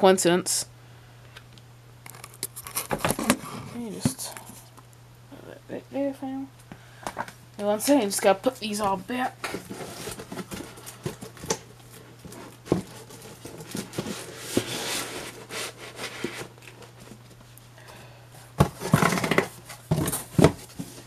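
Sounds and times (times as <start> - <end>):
cardboard and paper rustling: 2.1 - 4.6, 9.2 - 17.5, 18.6 - 21.0
cardboard lid scraping and thumping: 2.8 - 4.1, 12.3 - 16.6, 18.6 - 21.0
comic books sliding into cardboard box: 13.7 - 16.6.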